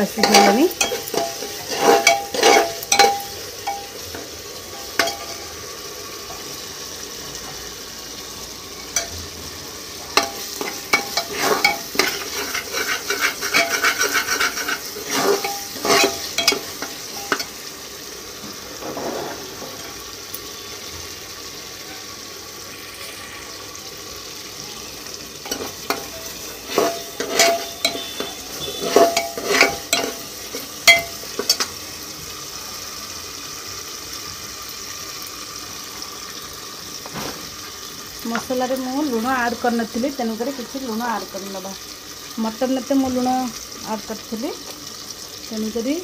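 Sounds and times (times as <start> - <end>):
spices sizzling in oil: 0.0 - 46.0
ladle scraping and clinking pot: 0.2 - 4.2, 4.8 - 5.5, 10.2 - 17.6, 18.8 - 20.0, 25.4 - 31.7.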